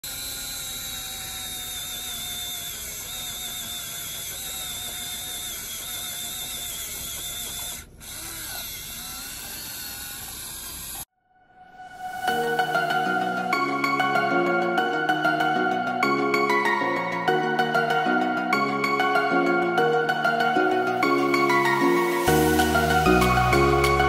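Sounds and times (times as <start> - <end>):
electric motor and gears whining: 0.0 - 11.1, 21.0 - 24.0.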